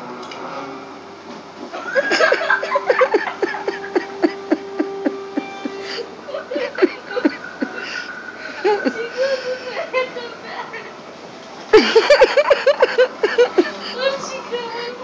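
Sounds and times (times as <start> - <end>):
person laughing: 1.8 - 9.7, 11.7 - 14.0.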